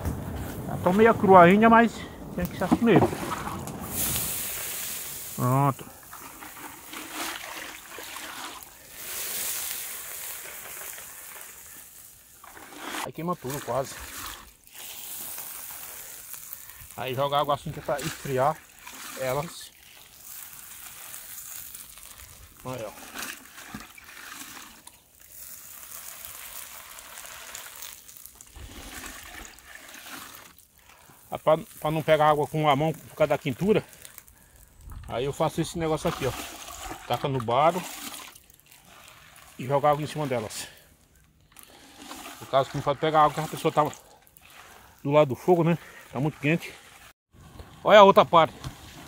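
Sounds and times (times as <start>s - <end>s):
low rumble: 0.0s - 5.2s, 34.7s - 35.4s
rush of steam: 0.0s - 7.2s, 8.3s - 23.0s
water splashing: 0.0s - 40.9s, 41.6s - 47.1s
hot nuts sizzling and hissing: 0.1s - 36.8s, 37.8s - 49.0s.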